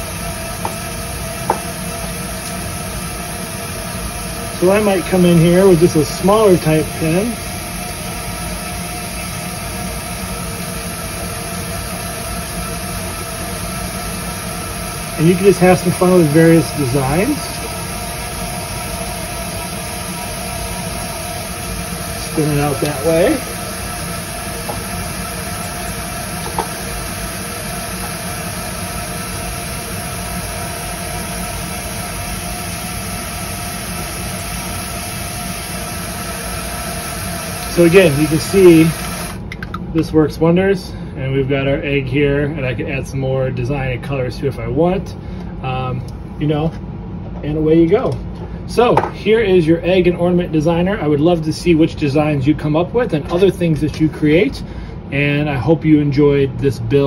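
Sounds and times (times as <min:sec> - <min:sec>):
robot motors humming with whine: 0:00.0 - 0:40.2
toy robot motors whirring: 0:35.8 - 0:39.4.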